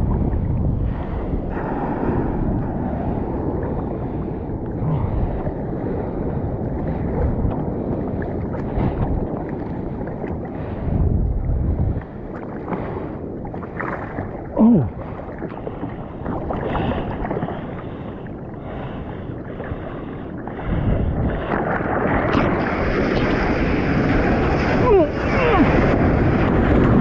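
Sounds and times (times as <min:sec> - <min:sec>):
wind buffeting microphone: 0:00.0 - 0:27.0
water sloshing against bodyboard: 0:06.7 - 0:26.1.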